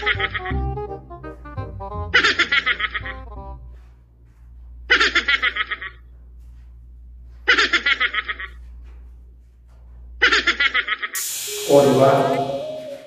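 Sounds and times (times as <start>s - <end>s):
music: 0.0s - 4.0s, 11.5s - 13.0s
rushing noise: 11.2s - 13.0s.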